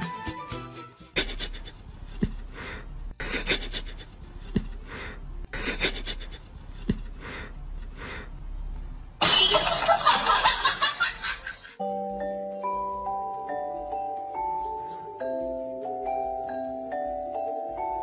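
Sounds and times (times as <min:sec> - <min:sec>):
breathy panting: 0:01.2 - 0:08.9, 0:14.2 - 0:16.9.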